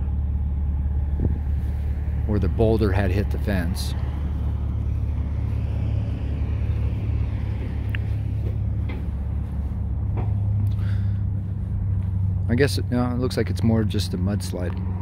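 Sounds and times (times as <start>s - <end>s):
road traffic rumble: 0.0s - 15.0s
passing vehicle hiss: 0.9s - 15.0s
footsteps in brush: 4.2s - 12.5s.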